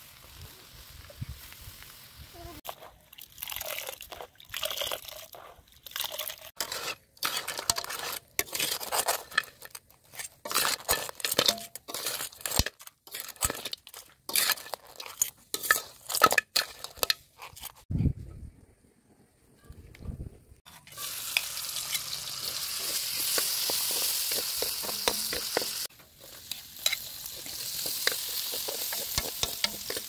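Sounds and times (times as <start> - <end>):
coconut squeezed in water: 2.6 - 6.6
crabs clattering on metal wok: 10.5 - 17.3, 20.8 - 30.0.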